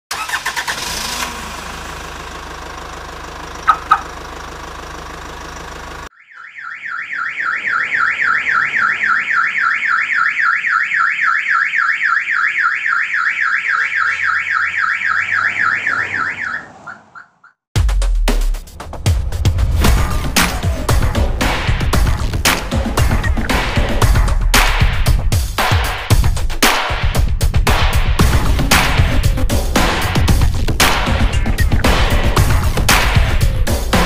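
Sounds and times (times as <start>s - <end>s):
car alarm siren warbling: 3.6s - 4.2s, 6.1s - 17.7s.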